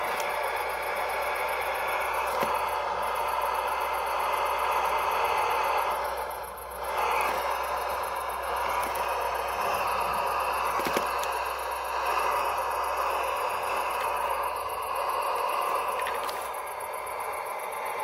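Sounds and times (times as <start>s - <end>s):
toy motor and gearbox whirring: 0.0s - 18.0s
wheels rattling on wooden logs: 6.9s - 16.6s.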